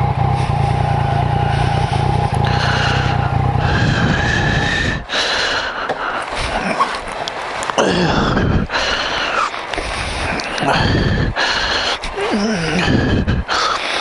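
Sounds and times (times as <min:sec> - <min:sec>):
motorcycle engine running: 0:00.0 - 0:05.9
steady whine: 0:00.0 - 0:14.0.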